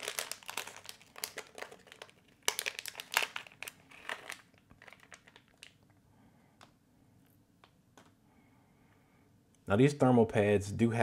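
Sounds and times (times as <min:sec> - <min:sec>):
plastic bag crinkling: 0:00.0 - 0:05.9.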